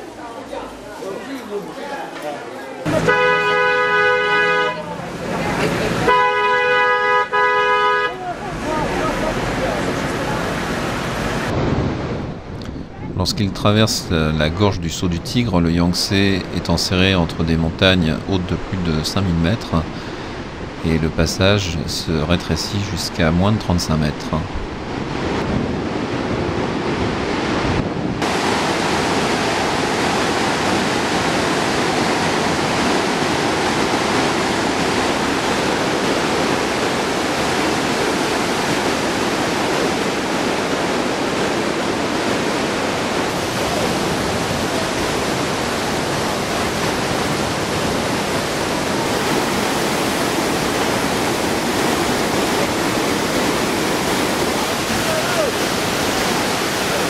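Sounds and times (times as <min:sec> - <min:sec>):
river rapids rushing: 0:00.0 - 0:11.5, 0:28.2 - 0:57.0.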